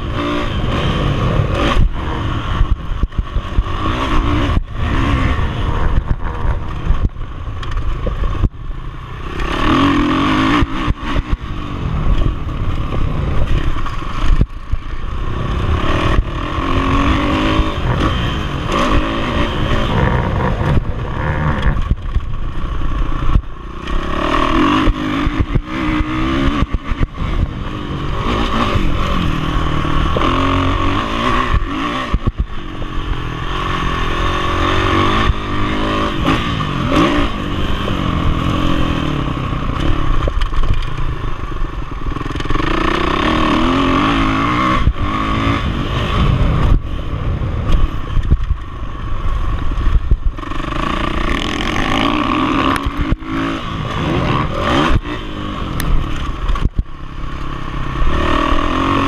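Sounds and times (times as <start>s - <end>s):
motocross bike engine revving: 0.0s - 59.0s.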